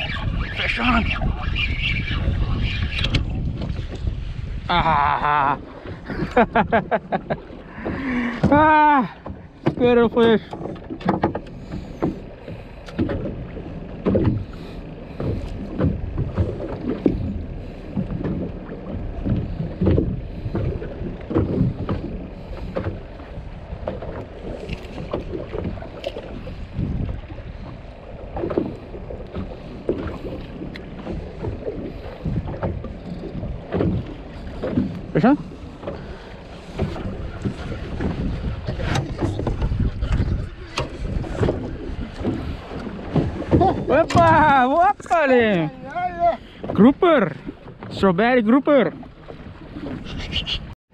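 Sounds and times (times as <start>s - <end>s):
wind on microphone: 0.0s - 6.8s, 15.3s - 47.9s
water slapping boat hull: 0.0s - 50.9s
low knocks and thumps: 3.1s - 4.2s, 7.7s - 45.2s.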